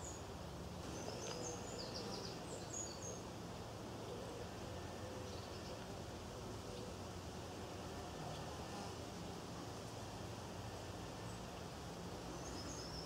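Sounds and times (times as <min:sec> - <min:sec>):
small birds chirping: 0:00.0 - 0:03.4, 0:04.0 - 0:06.0, 0:11.2 - 0:13.0
low background hiss: 0:00.0 - 0:13.0.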